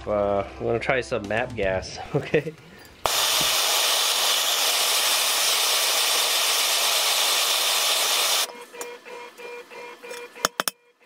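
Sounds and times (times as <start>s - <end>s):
gas torch hissing: 3.0s - 8.5s.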